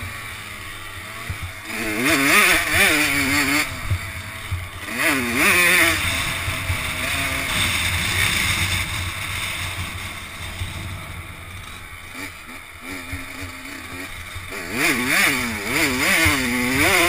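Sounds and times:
two-stroke motorcycle engine revving: 0.0s - 17.0s
wind buffeting microphone: 5.4s - 11.7s.

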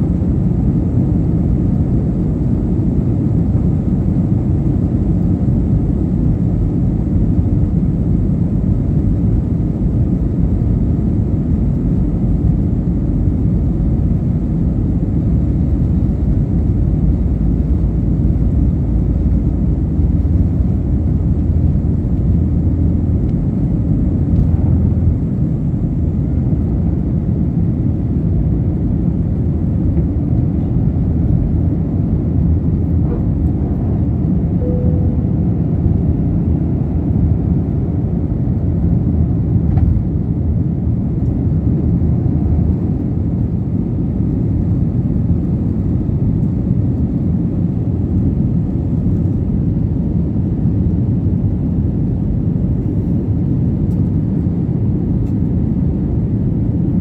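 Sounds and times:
jet engines rumbling in cabin: 0.0s - 57.0s.

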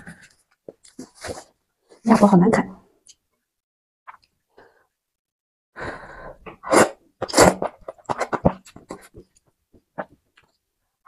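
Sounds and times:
person slurping noodles: 6.3s - 9.2s.

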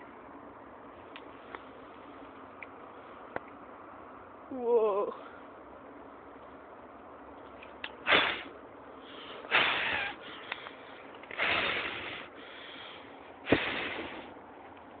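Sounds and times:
firework hissing sparks: 8.0s - 8.5s, 9.5s - 10.3s, 11.4s - 12.3s, 13.4s - 14.4s.

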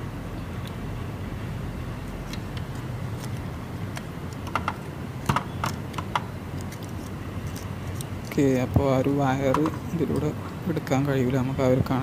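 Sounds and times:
low steady hum: 0.0s - 12.0s
plastic clicks and taps: 3.9s - 6.3s.

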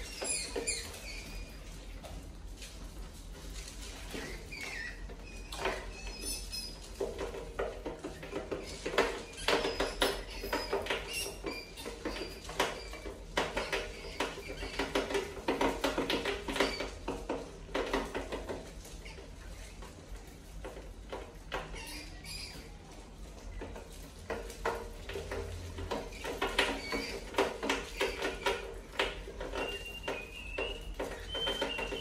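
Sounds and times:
rats squeaking: 0.0s - 2.2s, 3.5s - 32.0s
rats scrabbling against wire mesh: 0.0s - 32.0s.

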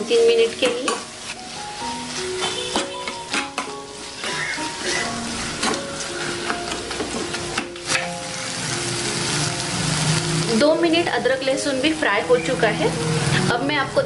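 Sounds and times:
masala sizzling in hot oil: 0.0s - 14.0s
spoon scraping a pan: 0.6s - 6.5s.

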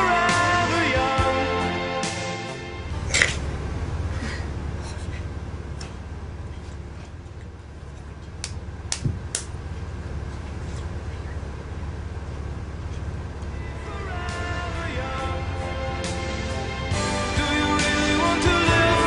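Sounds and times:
bus engine rumbling: 0.0s - 19.0s
sharp knocks and clicks: 8.2s - 9.5s.

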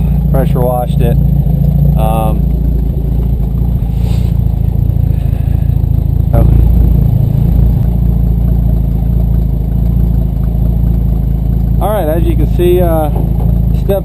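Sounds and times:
truck engine idling: 0.0s - 14.0s.

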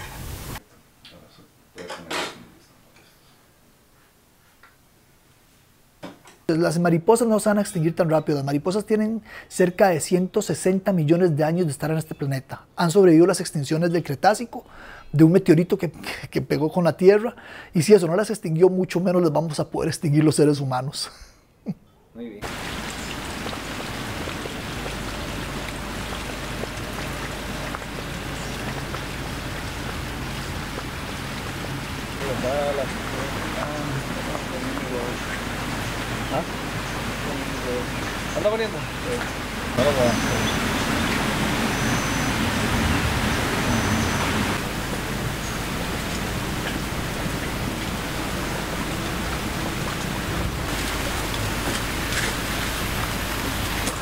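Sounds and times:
even hiss: 0.0s - 4.7s, 22.2s - 54.0s
dripping ticks: 22.4s - 37.3s, 43.2s - 54.0s.

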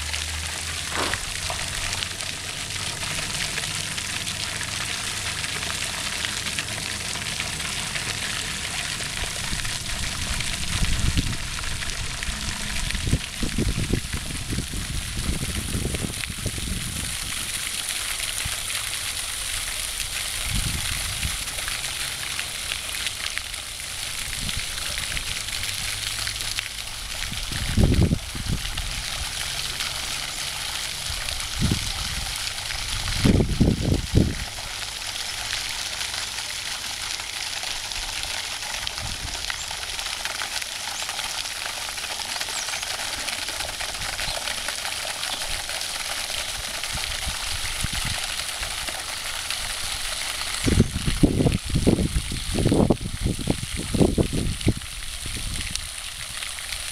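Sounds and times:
fountain spray splashing: 0.0s - 56.9s
low bumps: 0.8s - 1.9s.

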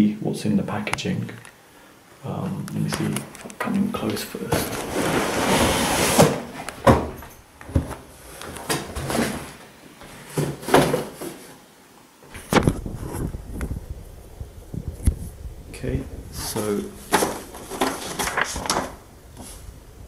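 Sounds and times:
cardboard scraping slide: 4.5s - 7.0s, 16.4s - 19.7s
knocks and thuds of box: 10.2s - 11.5s, 17.1s - 18.9s.

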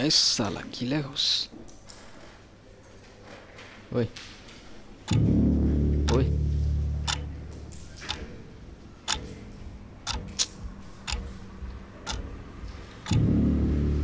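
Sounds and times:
clock ticking: 5.1s - 6.4s, 7.0s - 8.4s, 9.0s - 14.0s
low drone: 5.1s - 8.7s, 11.8s - 14.0s.

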